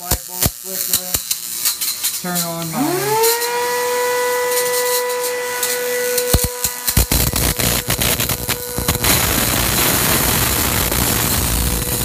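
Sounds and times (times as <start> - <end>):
electric spark snaps: 0.0 - 3.5, 4.4 - 12.0
high electrical whine: 0.0 - 12.0
spark gap crackling hiss: 0.0 - 12.0.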